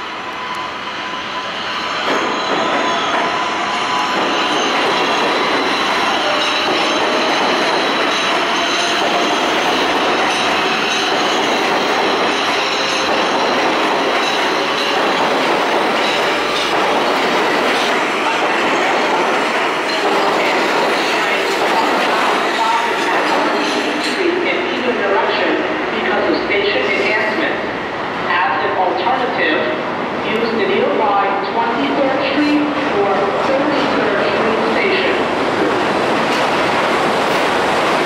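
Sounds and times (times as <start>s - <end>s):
train wheels squealing on rails: 0.0s - 24.4s
wheels clacking over rail joints: 4.0s - 24.2s.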